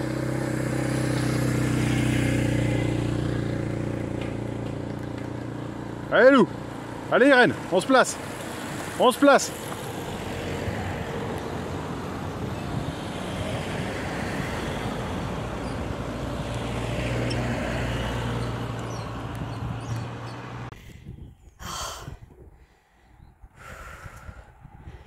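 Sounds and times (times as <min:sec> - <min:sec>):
low engine hum: 0:00.0 - 0:21.3
road and wind noise: 0:00.0 - 0:25.0.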